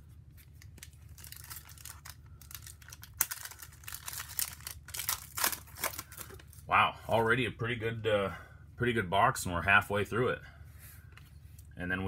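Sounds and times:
foil wrapper tearing and crinkling: 0.4s - 6.6s.

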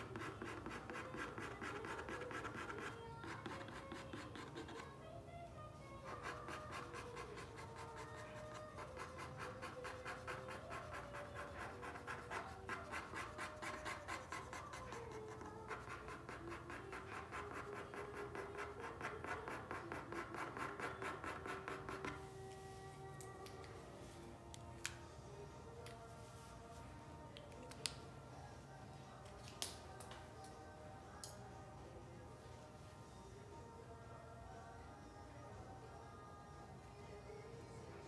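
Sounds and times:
drawing tool scratching on paper: 0.0s - 4.9s, 6.0s - 22.2s.

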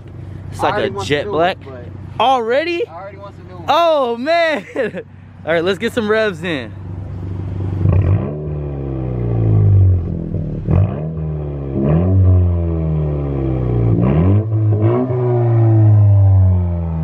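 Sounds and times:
car engine revving: 5.3s - 17.0s.

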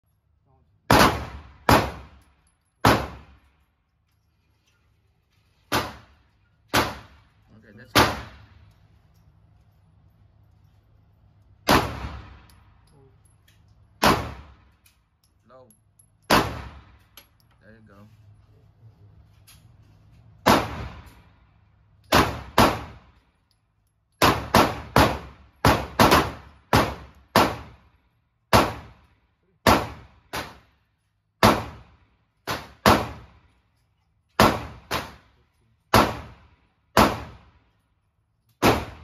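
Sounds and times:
pistol shots: 0.9s - 2.2s, 2.8s - 3.4s, 5.7s - 7.3s, 7.9s - 8.5s, 11.6s - 12.5s, 14.0s - 14.7s, 16.3s - 17.0s, 20.4s - 21.2s, 22.1s - 23.1s, 24.2s - 27.9s, 28.5s - 29.0s, 29.6s - 30.7s, 31.4s - 33.4s, 34.4s - 35.3s, 35.9s - 37.6s, 38.6s - 39.0s.

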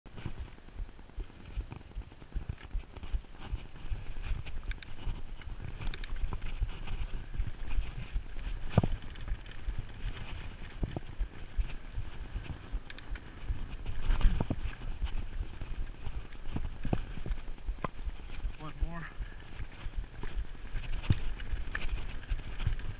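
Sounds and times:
bike rattling and knocking: 0.1s - 18.6s, 19.2s - 22.9s
wind and tyres rolling over dirt: 0.1s - 22.9s.

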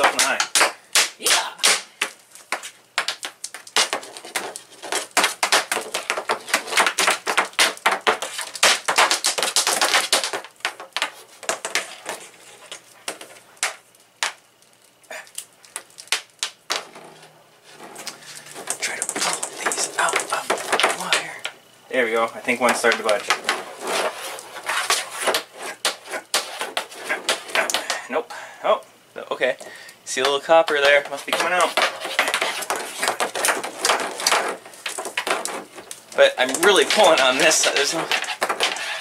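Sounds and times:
electrical cable clicking and knocking: 0.0s - 14.4s, 18.0s - 21.6s, 22.2s - 23.7s, 29.6s - 39.0s.

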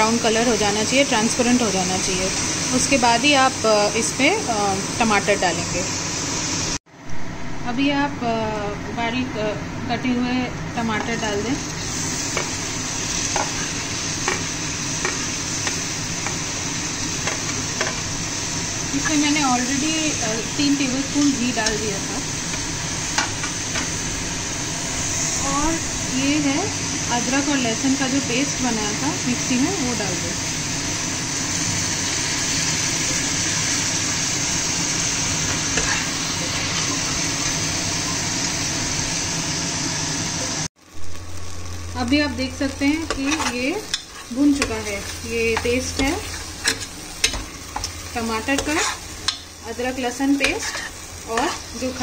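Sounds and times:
onions sizzling in a pan: 0.0s - 6.8s, 9.8s - 52.0s
spoon stirring and scraping: 43.1s - 49.4s, 50.4s - 51.8s.

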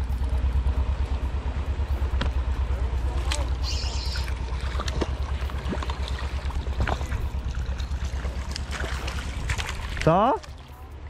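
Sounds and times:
low pulsing rumble: 0.0s - 11.0s
river water rushing: 3.1s - 10.7s.

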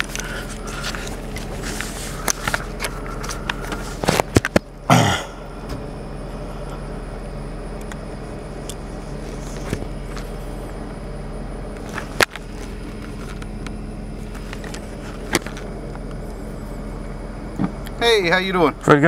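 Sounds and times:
car engine idling: 0.0s - 19.0s.

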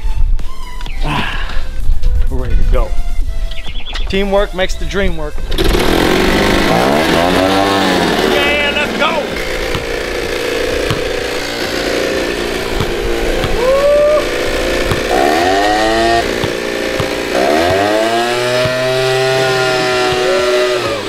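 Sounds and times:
leaf blower engine revving: 5.5s - 21.0s.

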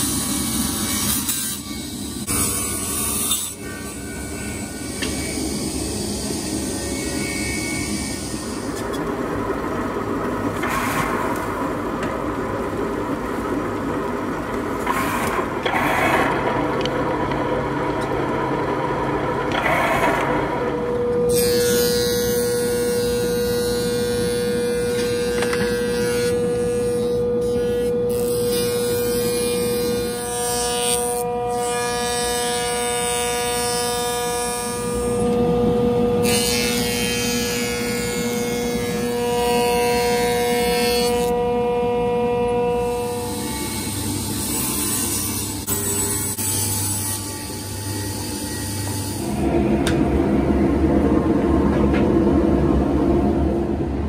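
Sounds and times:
planer cutting boards hiss: 0.0s - 9.0s
thickness planer running: 0.0s - 54.0s.

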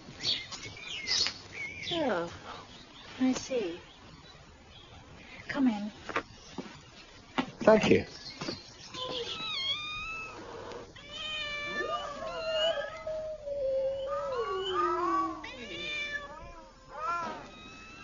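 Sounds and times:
cats meowing: 8.9s - 18.0s.

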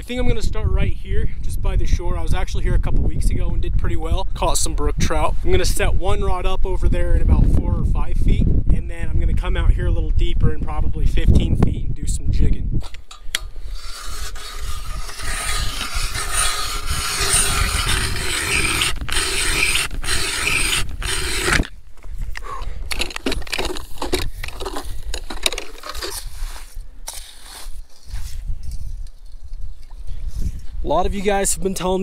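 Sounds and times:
auger scrapes and knocks: 13.1s - 21.7s
ice auger grinding scrape: 13.4s - 21.7s, 22.9s - 28.8s.

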